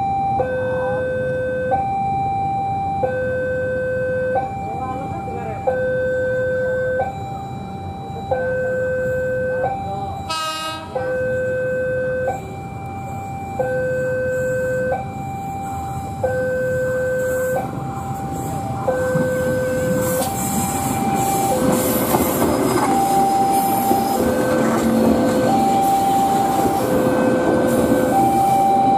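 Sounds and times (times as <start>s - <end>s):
two-tone crossing alarm: 0.0s - 28.9s
train passing rumble: 8.4s - 28.9s
train horn blast: 10.3s - 11.0s.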